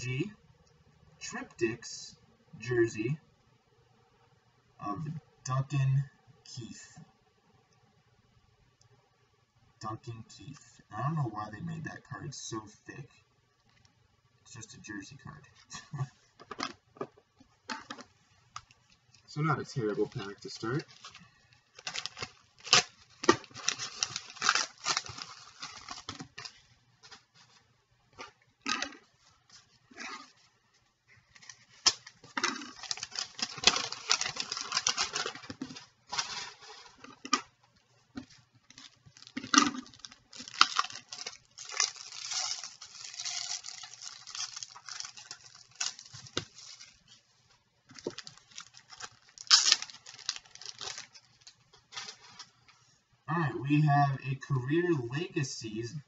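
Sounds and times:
wrappers crinkling and rustling: 17.7s - 30.5s, 31.2s - 37.5s, 38.2s - 52.8s.

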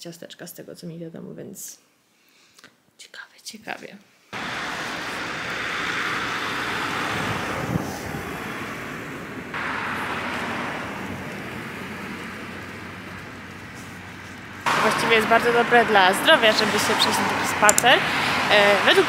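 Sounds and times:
cars passing with tyre hiss: 4.3s - 19.0s.

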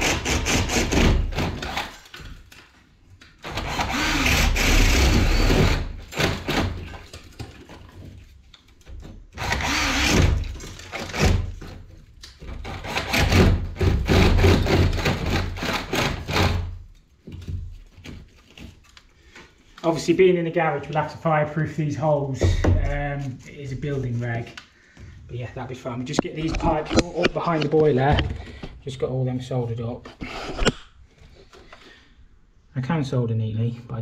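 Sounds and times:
cordless drill boring into ceiling: 0.0s - 2.1s, 3.4s - 7.0s, 9.4s - 11.6s, 12.6s - 16.8s.

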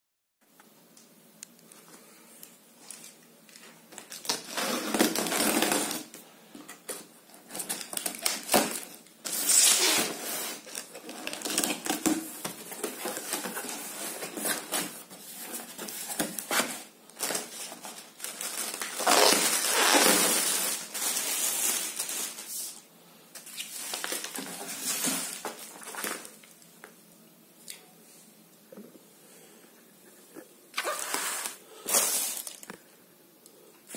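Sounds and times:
plastic and bubble wrap rustling: 2.4s - 26.6s, 30.8s - 32.9s
packing tape pulled off: 6.9s - 15.0s, 16.1s - 22.8s, 30.8s - 32.7s.

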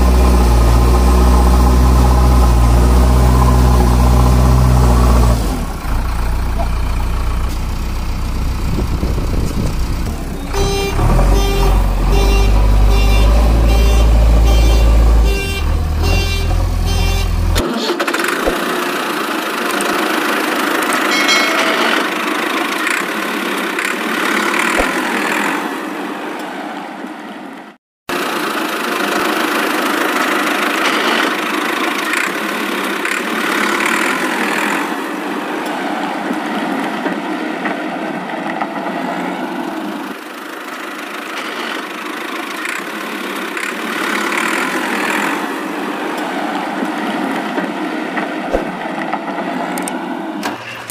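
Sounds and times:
heavy vehicle engine rumble: 0.0s - 17.7s
rough engine-like noise: 0.0s - 50.9s.

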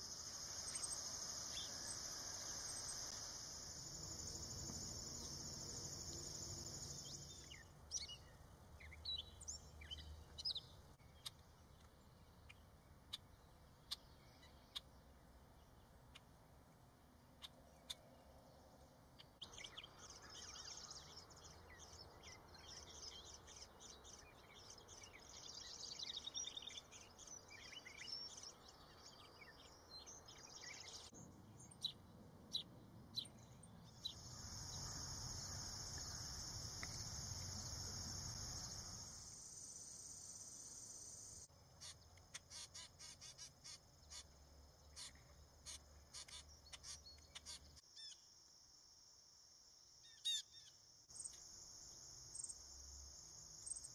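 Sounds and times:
high insect drone: 0.0s - 7.5s, 34.0s - 46.5s
birds chirping and trilling: 41.8s - 48.2s.

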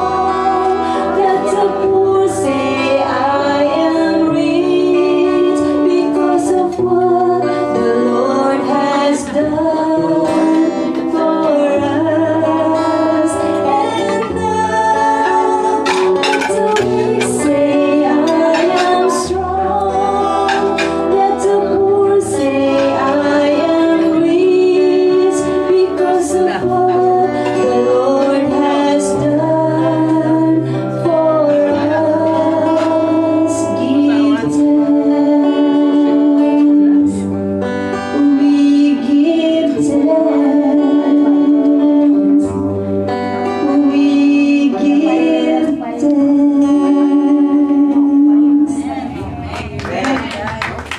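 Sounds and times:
person singing worship song: 0.0s - 50.5s
bass: 0.0s - 50.9s
strummed or percussive strikes: 12.7s - 23.9s.

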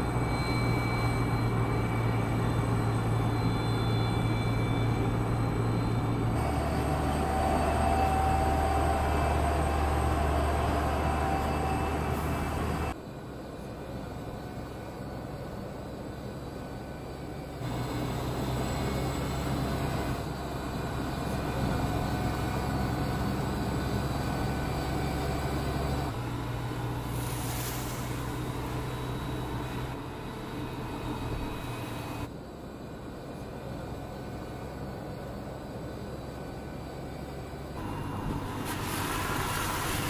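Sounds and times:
truck driving hum: 0.0s - 40.0s
truck passing rush: 1.2s - 13.0s, 37.8s - 40.0s.

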